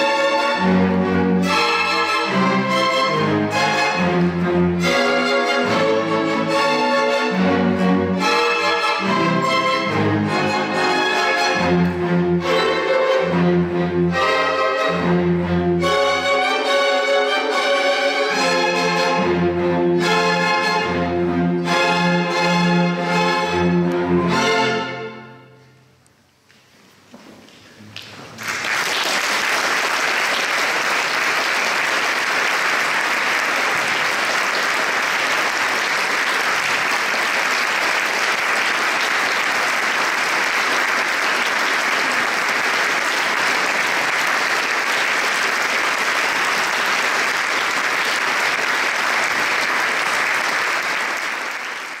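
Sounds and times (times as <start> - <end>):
audience applauding: 28.0 - 52.0.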